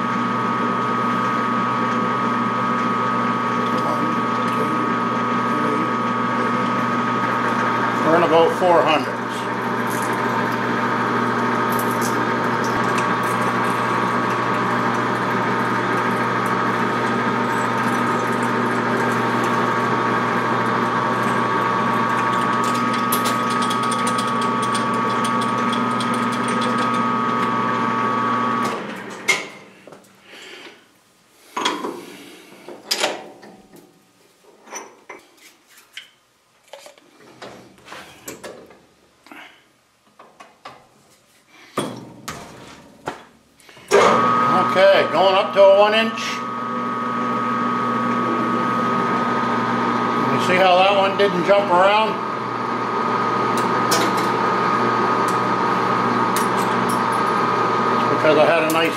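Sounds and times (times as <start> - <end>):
machine spindle drilling steel: 1.3 - 28.9, 43.9 - 58.9.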